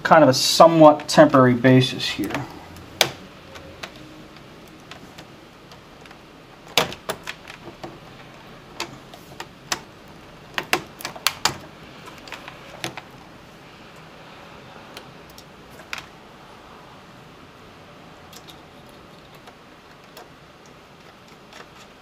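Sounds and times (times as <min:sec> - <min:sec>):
laptop casing clicking and knocking: 0:02.3 - 0:04.1, 0:04.7 - 0:13.1.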